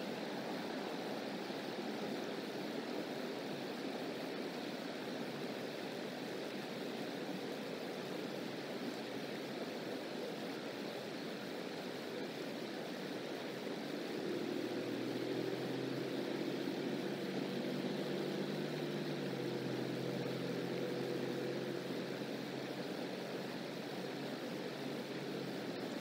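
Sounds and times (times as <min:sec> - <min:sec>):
rushing background noise: 0:00.0 - 0:26.0
distant engine droning: 0:13.8 - 0:26.0.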